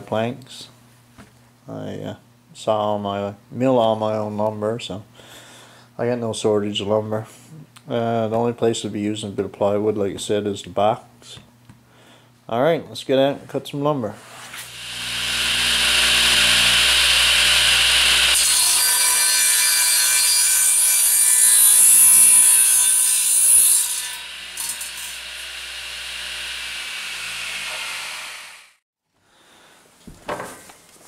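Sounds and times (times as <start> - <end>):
circular saw cutting wood: 14.6 - 28.8.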